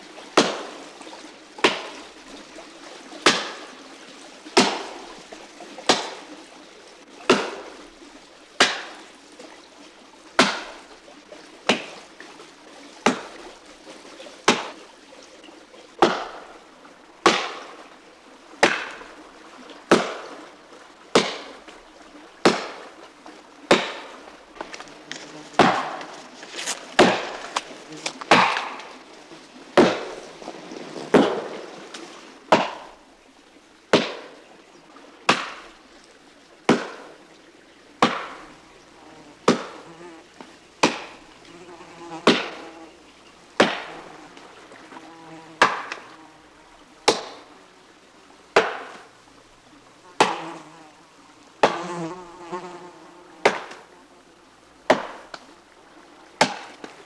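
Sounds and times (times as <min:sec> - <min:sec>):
axe chopping tree trunk: 0:14.5 - 0:14.8, 0:16.0 - 0:16.4, 0:17.2 - 0:17.7, 0:21.1 - 0:21.5, 0:23.7 - 0:28.9, 0:35.3 - 0:35.6, 0:36.7 - 0:37.0, 0:38.0 - 0:38.4, 0:39.5 - 0:39.8, 0:40.8 - 0:41.2, 0:42.2 - 0:42.6, 0:43.6 - 0:43.9, 0:48.6 - 0:49.0, 0:53.4 - 0:53.8, 0:54.9 - 0:55.3, 0:56.4 - 0:56.8
wood chips splitting: 0:24.6 - 0:28.9
insect buzzing: 0:24.6 - 0:29.5, 0:38.4 - 0:40.4, 0:41.2 - 0:43.0, 0:43.7 - 0:47.8, 0:50.0 - 0:54.3.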